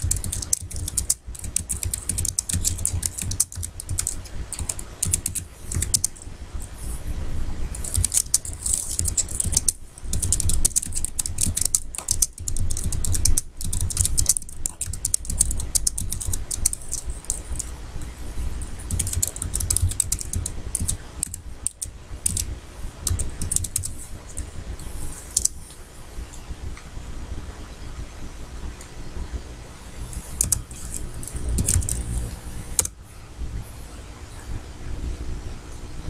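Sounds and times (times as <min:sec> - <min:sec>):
keyboard typing clicks: 0:00.0 - 0:06.2, 0:07.8 - 0:17.7, 0:18.8 - 0:25.6, 0:30.1 - 0:32.9.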